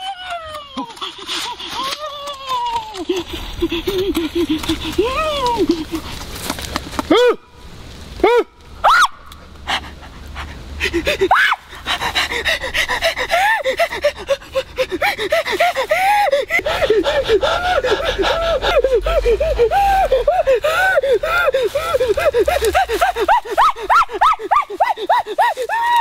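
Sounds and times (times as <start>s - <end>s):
man gasping cries: 12.2s - 26.0s.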